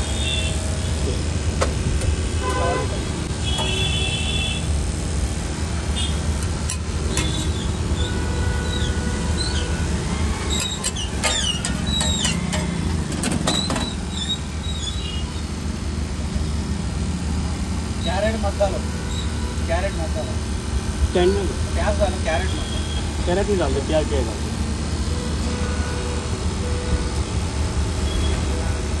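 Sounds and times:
street traffic rumble: 0.0 - 29.0
metal tongs scraping on griddle: 6.4 - 7.7, 10.4 - 14.9.

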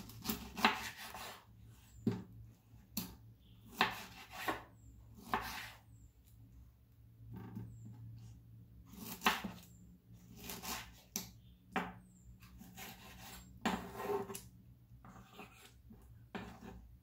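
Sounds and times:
knife slicing pineapple: 0.0 - 1.4, 3.7 - 5.8, 8.9 - 9.6, 10.3 - 11.2.

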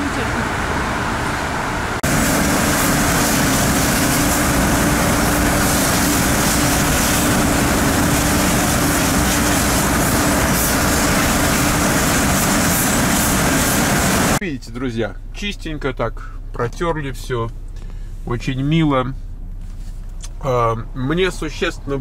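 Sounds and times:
constant machine hum: 0.0 - 22.0
pressure washer spraying water: 2.0 - 14.4.

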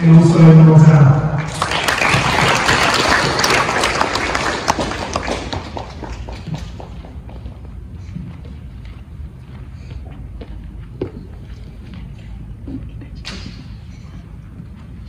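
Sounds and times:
audience applauding: 1.4 - 7.2.

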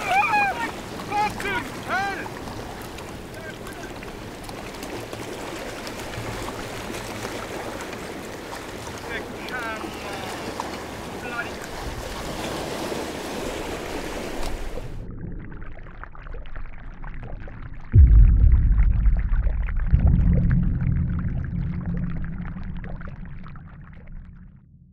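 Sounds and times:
wind: 0.0 - 15.3
open water noise: 0.0 - 24.8
low rumble: 14.9 - 24.9
deep boom: 17.8 - 24.9.

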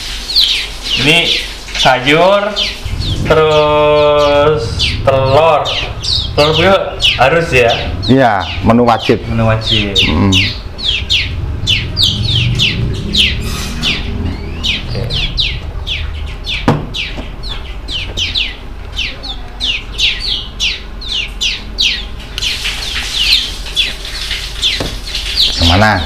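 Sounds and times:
finches chirping: 0.0 - 26.0
sharp knock: 16.6 - 17.3.

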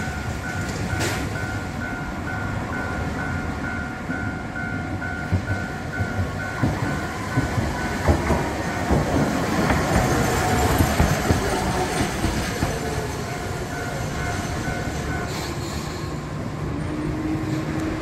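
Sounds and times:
level crossing warning bell: 0.0 - 9.8, 12.3 - 15.4
tram wheels clattering over rail joints: 0.0 - 18.0.

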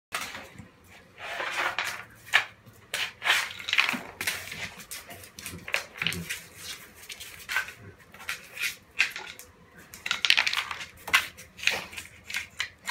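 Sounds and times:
dog scuffling with toys: 0.2 - 12.9.

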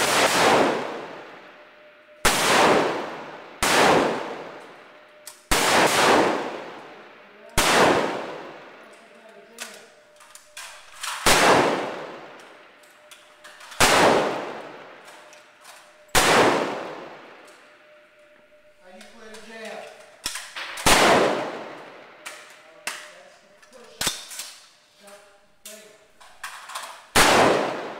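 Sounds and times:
rifle shots echoing: 0.0 - 1.5, 2.2 - 4.8, 5.4 - 8.9, 10.0 - 18.0, 20.3 - 23.1, 27.1 - 27.9.

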